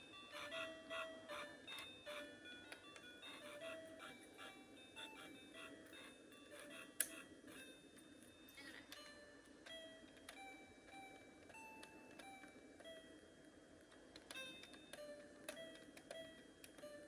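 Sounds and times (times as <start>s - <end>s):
toy electronic piano notes: 0.0s - 7.9s.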